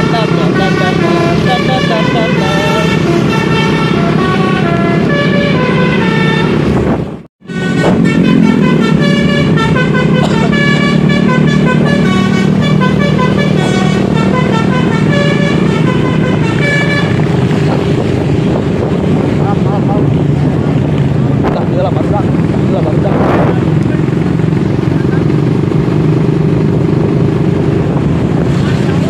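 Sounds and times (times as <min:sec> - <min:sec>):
musical air horn: 0:00.0 - 0:17.4
bus engine running: 0:00.0 - 0:29.0.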